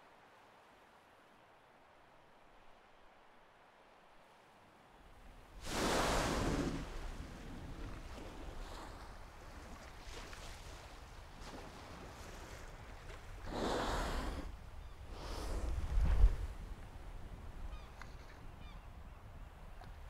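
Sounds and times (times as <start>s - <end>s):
ocean water surging: 5.5s - 14.6s.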